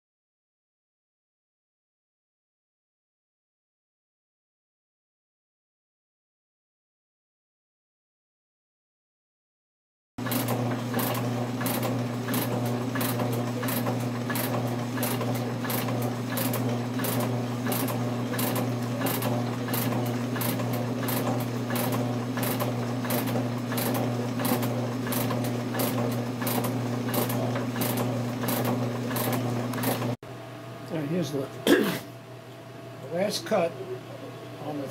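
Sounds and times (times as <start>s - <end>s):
rapid machine clicking: 10.2s - 30.2s
motor hum: 10.2s - 33.5s.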